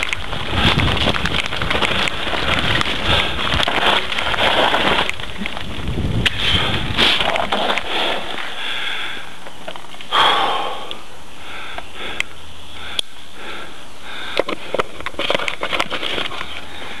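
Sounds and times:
tyres crunching on gravel: 0.0s - 8.7s, 14.2s - 17.0s
stones and bike rattling: 0.0s - 10.2s, 11.6s - 17.0s.

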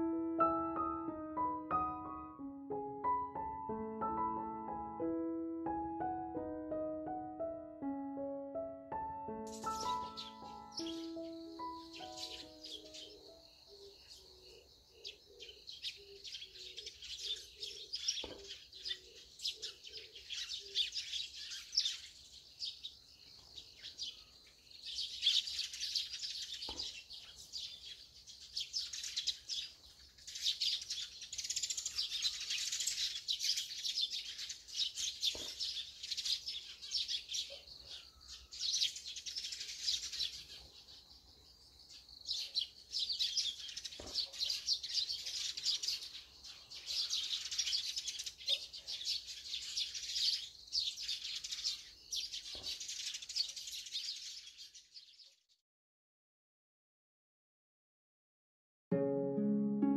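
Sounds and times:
sparrows chirping: 9.3s - 55.4s.

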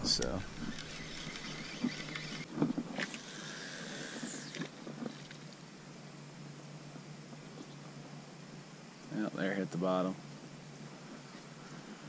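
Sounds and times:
short reel clicks: 0.0s - 3.2s
fishing reel spool whirring: 0.0s - 5.6s.

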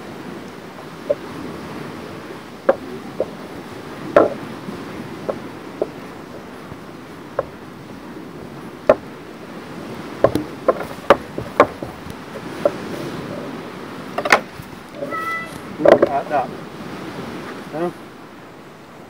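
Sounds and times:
steady background hiss: 0.0s - 19.0s
kitchen utensils knocking: 4.2s - 4.4s.

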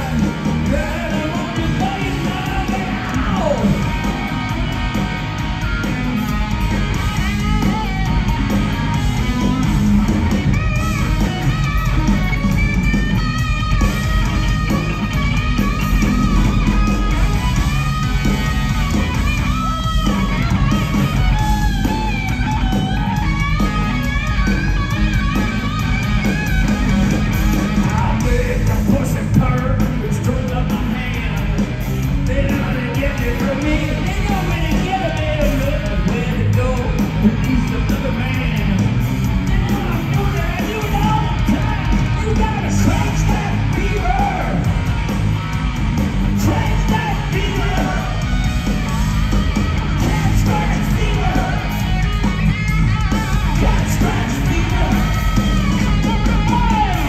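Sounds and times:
live hard rock band: 0.0s - 57.0s
overdriven electric guitar: 0.0s - 57.0s.

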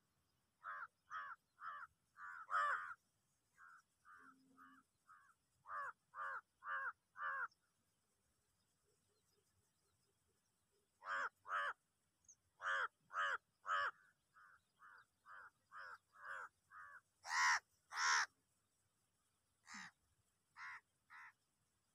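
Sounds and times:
crows cawing: 0.6s - 3.0s, 3.6s - 7.5s, 11.0s - 11.8s, 12.6s - 18.3s, 19.6s - 20.0s, 20.6s - 21.4s.

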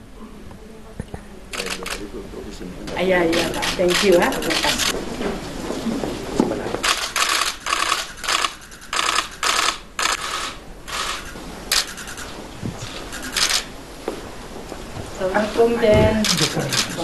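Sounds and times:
camera shutters clicking: 3.3s - 5.0s, 6.8s - 13.7s, 16.2s - 17.0s.

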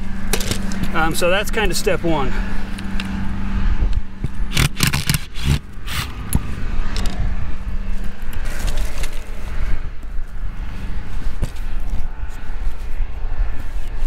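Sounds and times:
wind buffeting microphone: 2.0s - 14.0s
screwdriver clicking and scraping: 4.2s - 7.2s.

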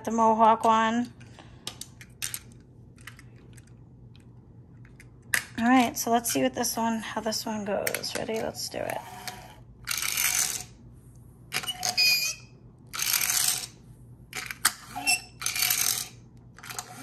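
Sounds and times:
toy car motor whirring and ratcheting: 8.9s - 10.7s, 11.6s - 13.8s, 14.4s - 17.0s.

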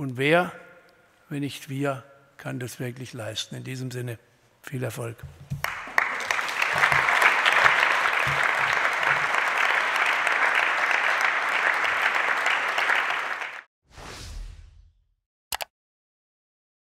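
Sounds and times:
audience applauding: 5.6s - 13.7s.

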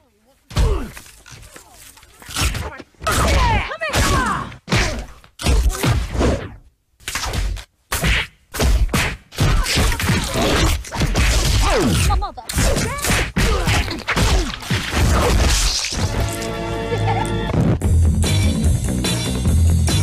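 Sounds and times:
music: 16.0s - 20.0s.

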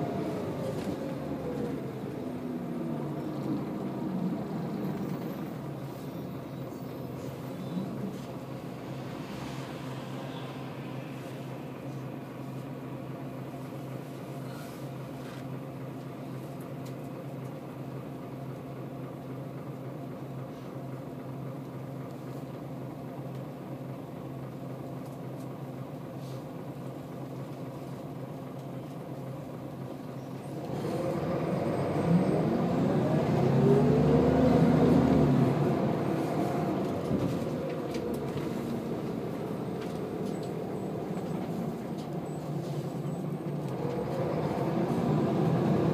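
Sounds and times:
bus diesel engine: 0.0s - 45.9s.

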